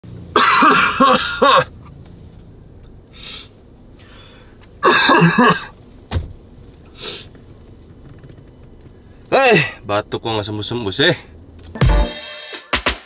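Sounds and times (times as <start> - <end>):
person coughing: 0.4 - 1.7, 4.8 - 5.8
quiet breaths: 3.1 - 4.7.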